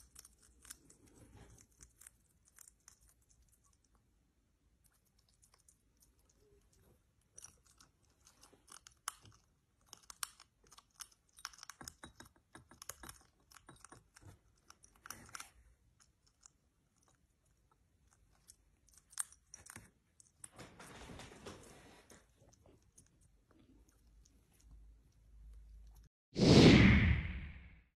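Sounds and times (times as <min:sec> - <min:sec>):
hedgehog crunching dry kibble: 0:00.0 - 0:04.0, 0:04.9 - 0:20.6.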